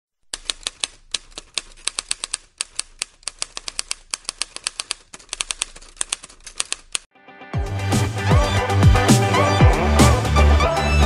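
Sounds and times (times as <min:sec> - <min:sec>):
typewriter keys clacking: 0:00.3 - 0:07.1.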